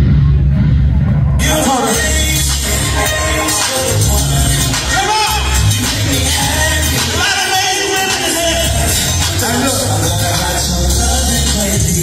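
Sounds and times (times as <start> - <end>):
heavy bass: 0.0 - 12.0
man singing: 1.4 - 12.0.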